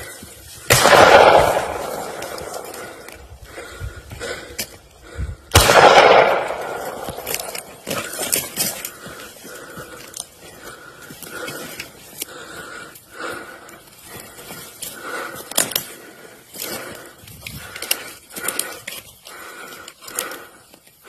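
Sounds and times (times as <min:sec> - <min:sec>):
heavy rhythmic breathing: 0:00.0 - 0:21.0
footsteps crunching in brush: 0:06.6 - 0:12.2
twigs snapping: 0:06.7 - 0:12.5.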